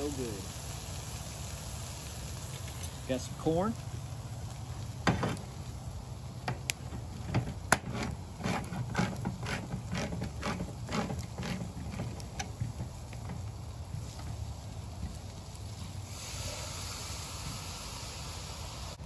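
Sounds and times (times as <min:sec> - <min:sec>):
hand-crank can opener clicking: 0:07.7 - 0:12.6.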